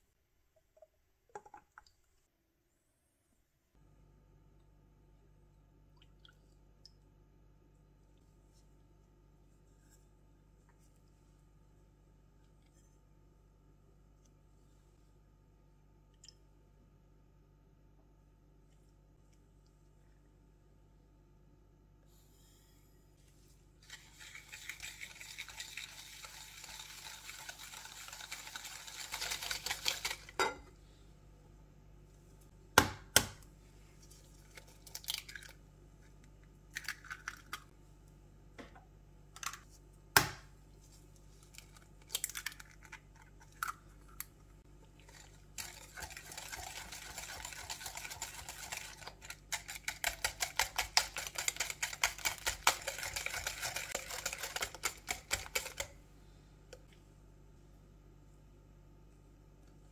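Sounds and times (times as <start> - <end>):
whisk beating in ceramic bowl: 23.9 - 30.4, 45.0 - 55.9
eggs cracking with clinks: 36.3 - 37.7.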